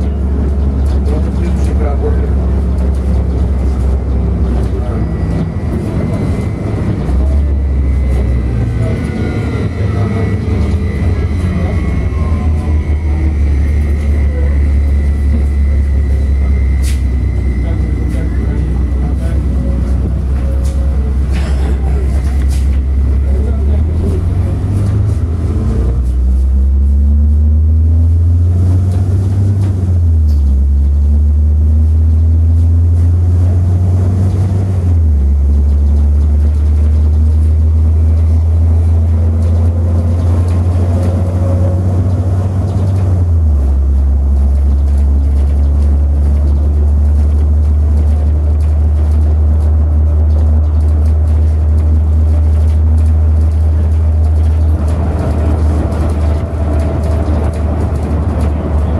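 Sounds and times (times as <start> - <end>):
bus engine and road drone: 0.0 - 58.9
faint rising whine: 3.4 - 21.3.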